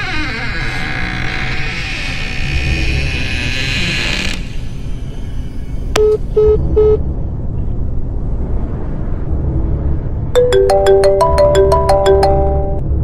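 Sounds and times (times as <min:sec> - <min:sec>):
short electronic beeps: 0:06.0 - 0:07.0
bell-like struck notes: 0:10.4 - 0:12.9.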